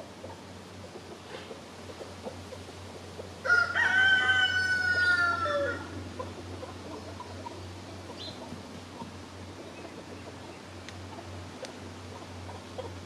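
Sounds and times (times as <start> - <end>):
hen clucking: 0.0 - 13.0
rooster crowing: 3.4 - 6.0.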